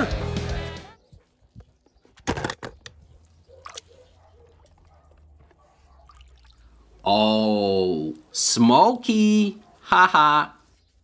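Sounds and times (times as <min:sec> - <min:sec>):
water drips and sloshes: 0:03.2 - 0:04.0, 0:05.9 - 0:06.9.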